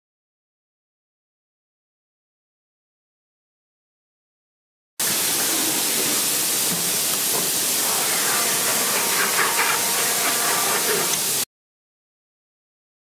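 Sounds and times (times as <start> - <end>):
loud steady hiss: 5.0 - 11.5.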